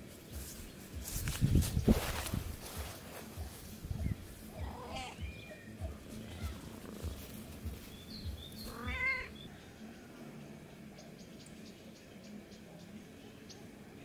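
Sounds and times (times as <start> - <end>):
faint bird chirps: 4.0 - 14.0
cat meowing: 4.6 - 6.8, 8.6 - 9.4.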